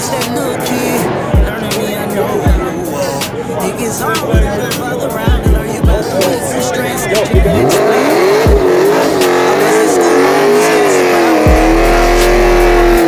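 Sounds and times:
car engine at high revs: 7.4 - 13.0
low thumps: 11.5 - 13.0.

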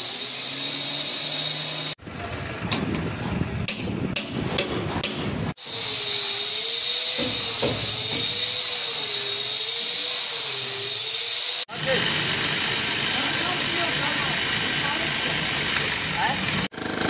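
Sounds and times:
power cutter cutting concrete block: 0.0 - 2.0, 5.6 - 17.0
hammer striking chisel: 3.6 - 5.4, 7.2 - 8.4.

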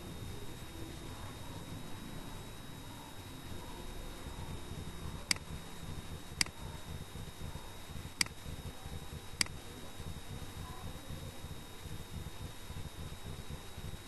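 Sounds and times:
low hum and hiss: 0.0 - 14.0.

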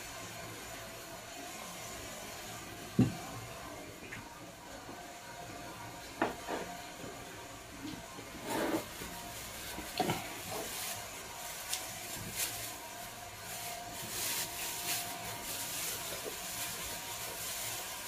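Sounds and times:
plastic glove clicks and rustles: 9.6 - 12.8.

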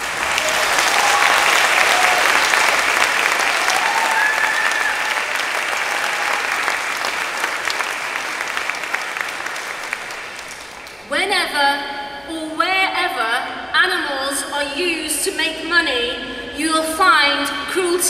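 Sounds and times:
audience applauding: 0.0 - 11.1.

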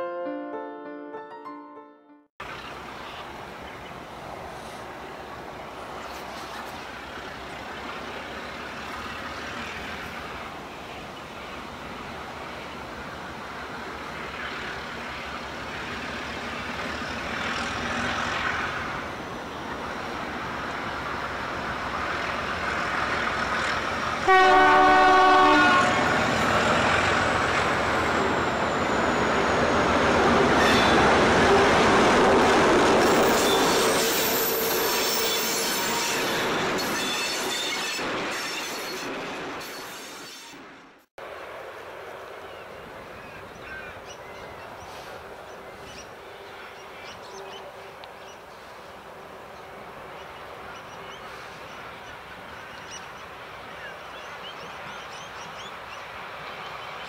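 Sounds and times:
diesel locomotive engine: 2.4 - 57.0
locomotive horn blast: 24.2 - 26.3.

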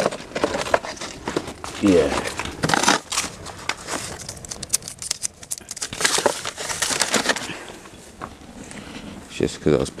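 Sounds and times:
litter crinkling and rustling: 0.0 - 7.8
sharp clicks: 4.2 - 5.9.

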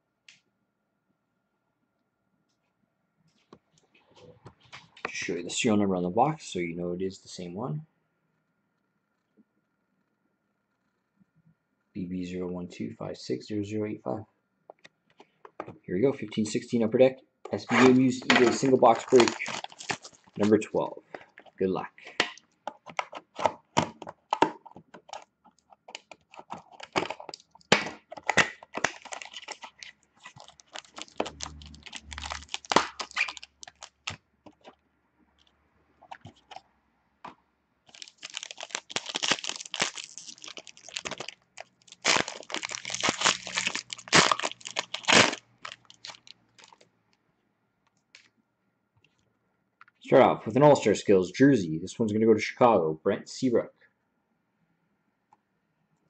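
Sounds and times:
foil pack crinkling and tearing: 17.5 - 21.6, 24.6 - 34.8, 37.9 - 46.8.

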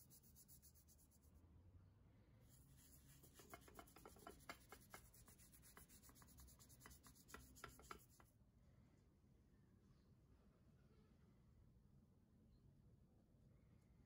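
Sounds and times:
toothbrush scrubbing metal: 0.0 - 1.2, 2.5 - 8.2.

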